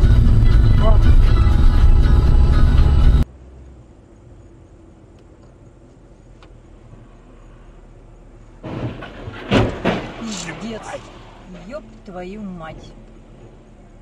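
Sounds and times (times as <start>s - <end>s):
car interior hum: 0.0s - 14.0s
faint ticks: 3.6s - 7.6s.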